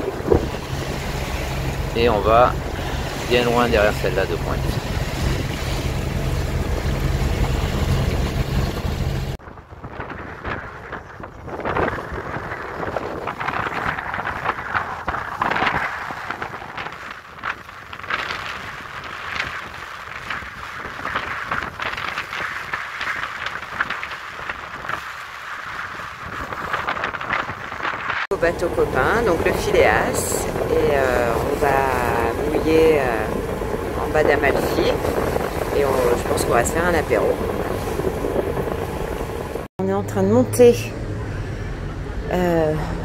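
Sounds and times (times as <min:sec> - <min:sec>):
diesel engine humming: 0:00.0 - 0:09.4, 0:28.3 - 0:43.0
wind on microphone: 0:00.0 - 0:39.7
water: 0:00.0 - 0:43.0.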